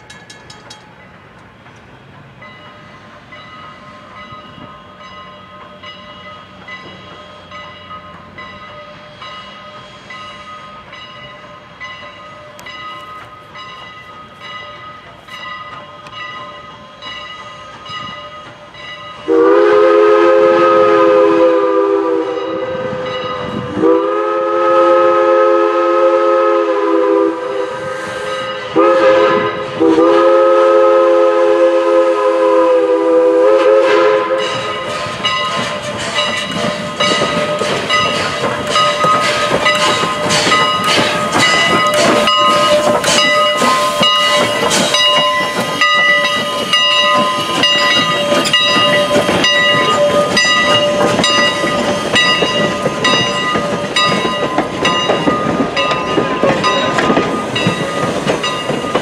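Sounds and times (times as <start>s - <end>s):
crossing bell ringing: 0.0s - 20.8s, 22.3s - 24.0s, 28.2s - 29.7s, 34.2s - 59.0s
train wheels clicking over rail joints: 0.0s - 21.2s, 33.4s - 59.0s
steam whistle blowing: 19.2s - 35.2s, 38.6s - 54.0s.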